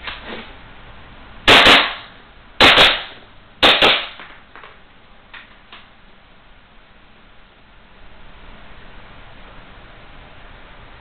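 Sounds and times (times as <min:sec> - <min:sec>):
airsoft pistol shots: 0:01.5 - 0:04.3.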